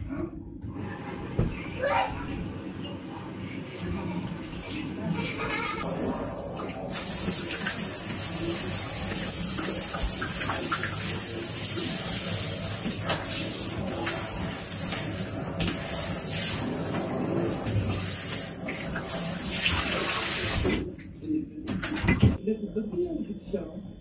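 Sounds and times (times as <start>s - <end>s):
tap water running into bathtub: 5.8s - 22.4s.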